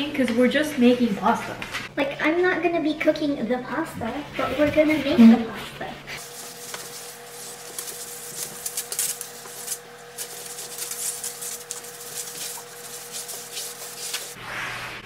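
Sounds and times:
cloth rubbing on countertop: 4.1s - 15.0s.

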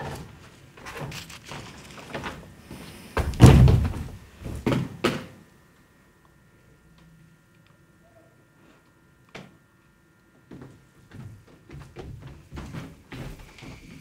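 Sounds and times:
heavy thud of body landing: 3.2s - 5.0s
shuffling on a stage floor: 10.7s - 14.0s.

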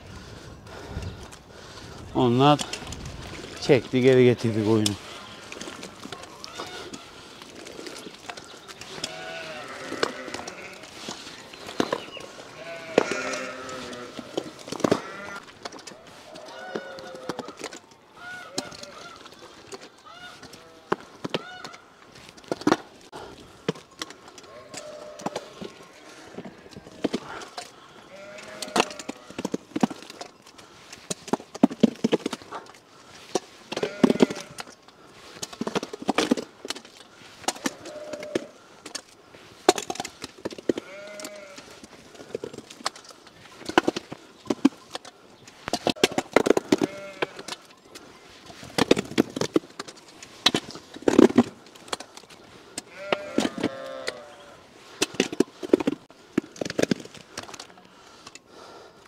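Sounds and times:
sheep bleating: 8.9s - 11.0s, 12.3s - 15.5s, 20.1s - 21.6s, 28.0s - 29.4s, 33.7s - 34.6s, 37.6s - 38.5s, 40.7s - 41.8s, 46.6s - 47.6s, 52.9s - 54.6s.

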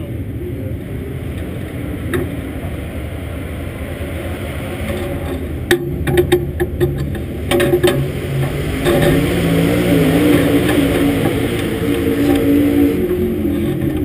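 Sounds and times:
race car engine idling: 0.0s - 14.0s
sharp knocks: 4.9s - 12.5s.

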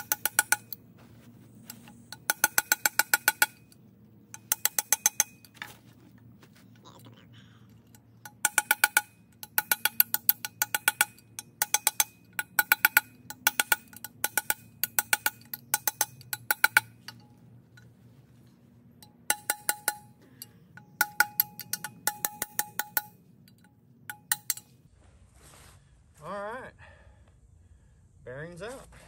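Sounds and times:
hammer striking metal drift: 0.0s - 5.8s, 7.8s - 24.8s.

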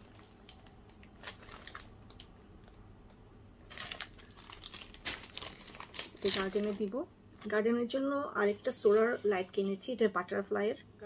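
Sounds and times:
plastic packaging crinkling: 0.0s - 2.8s, 3.6s - 7.6s.

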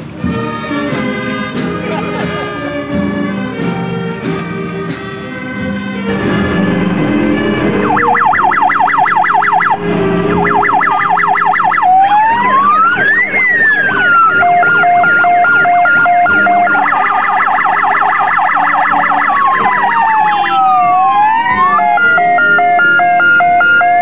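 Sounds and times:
wailing siren: 6.1s - 24.0s
two-tone high-low siren: 7.6s - 24.0s
yelping siren sweeps: 7.6s - 24.0s.

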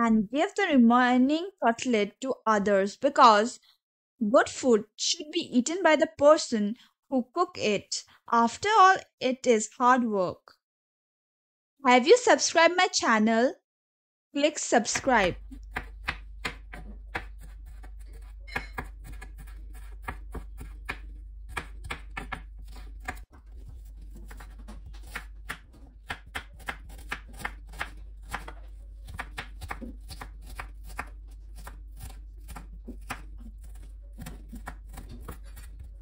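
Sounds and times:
knife chopping on wooden board: 15.0s - 36.0s.

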